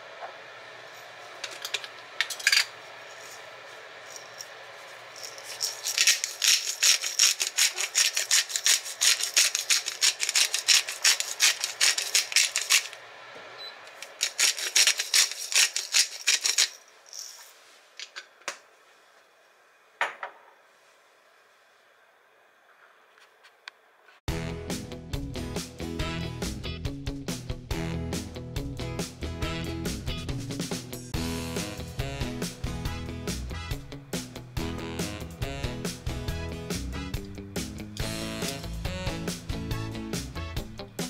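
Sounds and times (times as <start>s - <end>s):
pepper mill grinding: 1.4s - 13.0s, 13.9s - 18.2s, 38.0s - 38.8s.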